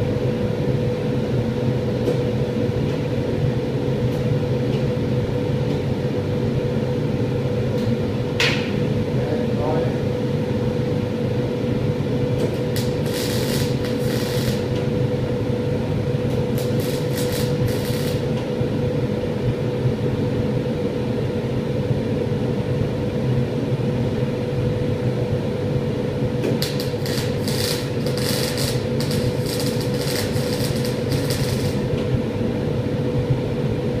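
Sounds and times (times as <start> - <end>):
fume extraction fan humming: 0.0 - 34.0
welding arc crackling hiss: 12.5 - 14.9, 16.4 - 18.4, 26.5 - 32.1.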